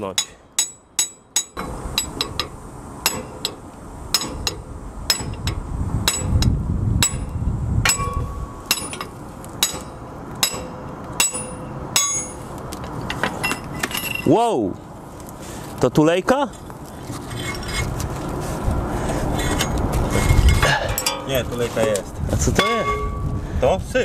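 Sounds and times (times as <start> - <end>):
hammer striking metal: 0.0 - 12.4, 22.6 - 23.3.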